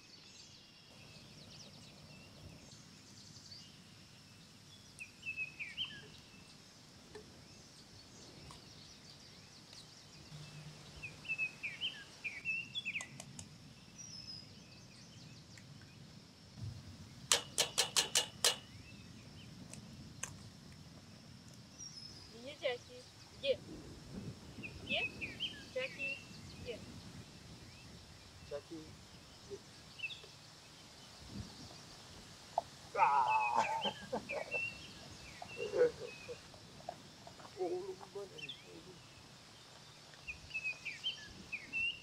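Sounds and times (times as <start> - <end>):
birds chirping: 0.0 - 20.5, 24.5 - 42.0
faint high hiss: 0.0 - 42.0
sharp clicks: 13.0 - 13.5, 17.3 - 18.7.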